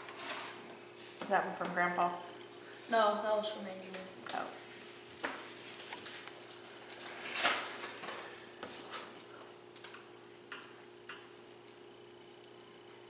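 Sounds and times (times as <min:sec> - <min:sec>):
paper envelope rustling: 0:05.2 - 0:09.2.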